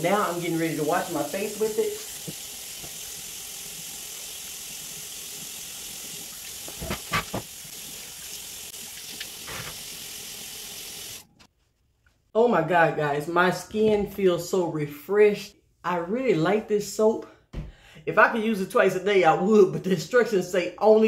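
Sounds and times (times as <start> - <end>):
tap running into sink: 2.1 - 3.1, 6.5 - 7.6
water splashing: 5.0 - 10.0.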